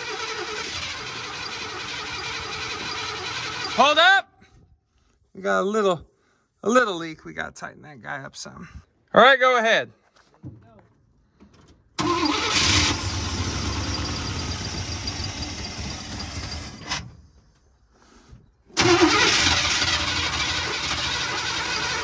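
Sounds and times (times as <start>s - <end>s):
engine cranking on starter: 0.0s - 3.8s, 12.0s - 17.2s, 18.7s - 22.0s.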